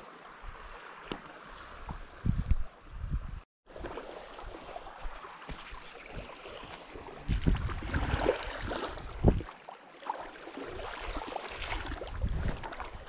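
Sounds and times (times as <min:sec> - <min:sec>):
water sloshing and gurgling: 0:03.7 - 0:13.0.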